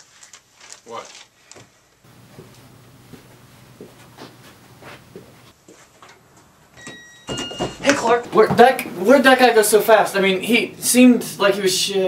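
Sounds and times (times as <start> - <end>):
faint scuffs and taps: 2.2 - 6.5.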